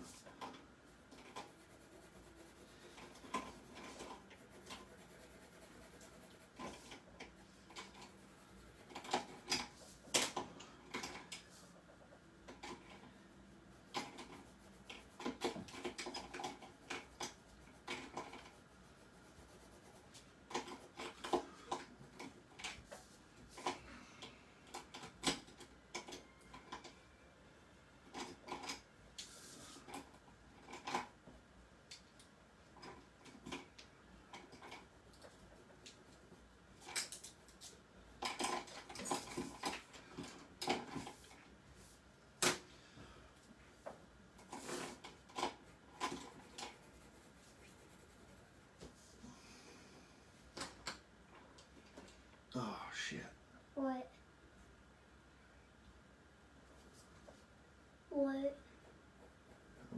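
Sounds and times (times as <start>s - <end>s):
pencil scratching on paper: 1.1s - 9.8s, 13.7s - 21.2s, 44.5s - 48.8s.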